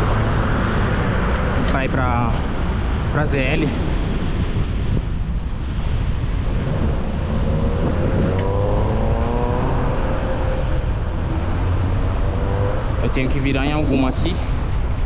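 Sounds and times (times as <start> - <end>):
street traffic rumble: 0.0 - 15.0
vehicle engine accelerating: 6.3 - 14.6.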